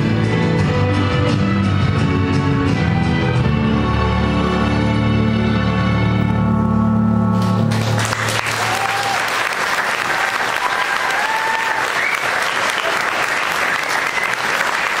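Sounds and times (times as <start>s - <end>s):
audience applauding: 7.4s - 15.0s.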